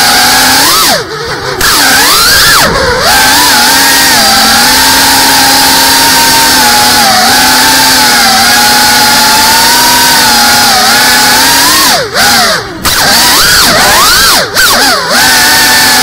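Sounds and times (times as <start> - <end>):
drone motors and propellers whining: 0.0 - 16.0.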